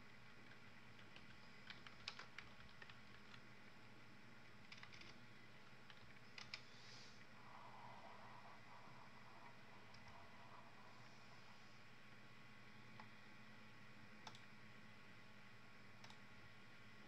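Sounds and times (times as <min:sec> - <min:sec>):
computer keyboard typing: 0:00.3 - 0:03.4, 0:04.6 - 0:06.7, 0:14.2 - 0:14.5, 0:16.0 - 0:16.2.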